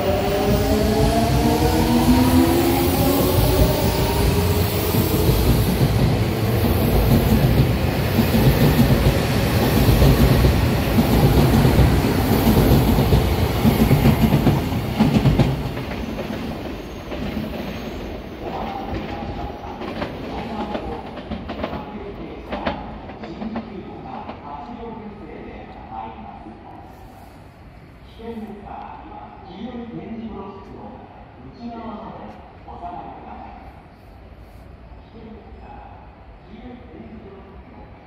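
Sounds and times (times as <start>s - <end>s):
train wheels clickety-clack: 0.4s - 24.7s.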